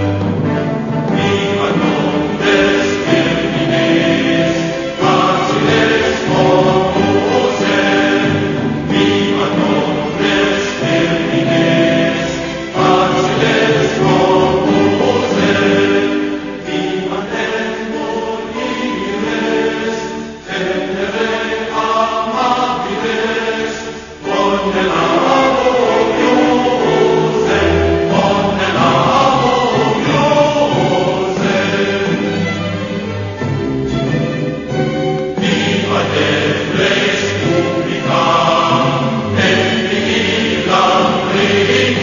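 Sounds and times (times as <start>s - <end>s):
choir singing held chords: 0.0s - 42.0s.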